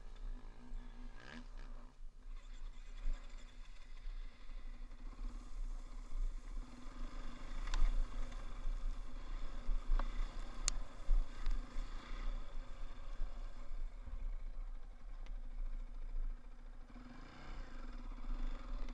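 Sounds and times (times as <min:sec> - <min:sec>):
dirt bike engine idling: 0:00.0 - 0:18.9.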